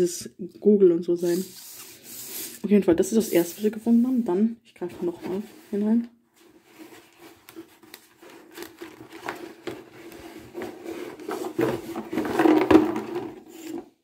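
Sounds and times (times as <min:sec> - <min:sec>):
hand rummaging in cardboard package: 0:06.6 - 0:13.6.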